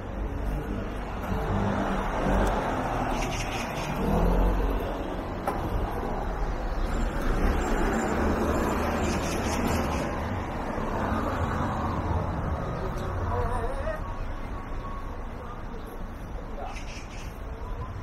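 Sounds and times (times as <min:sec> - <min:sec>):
cars passing in low rumble: 0:00.0 - 0:14.0.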